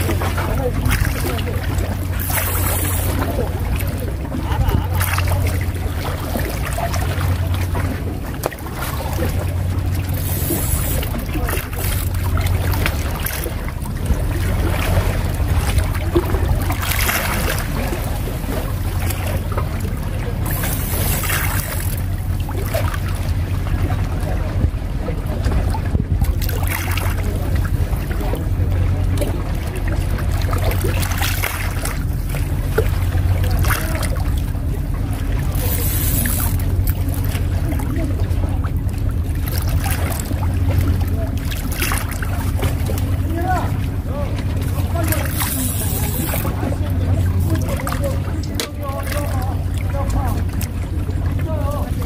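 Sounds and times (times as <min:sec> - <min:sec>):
boat engine droning: 0:00.0 - 0:52.0
wind buffeting microphone: 0:10.8 - 0:35.6.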